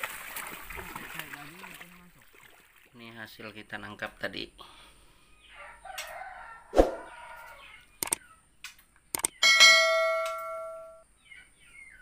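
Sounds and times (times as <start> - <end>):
mouse clicks: 8.0 - 9.4.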